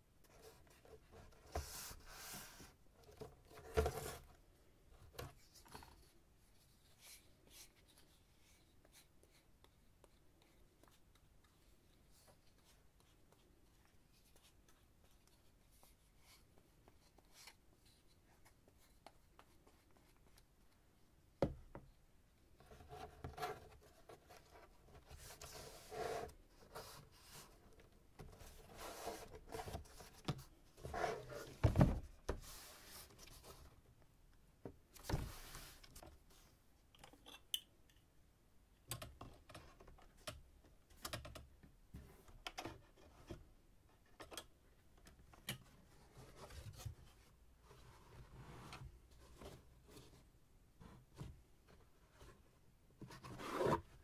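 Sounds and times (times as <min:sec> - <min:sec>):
cardboard scraping and crinkling: 0:01.5 - 0:04.3.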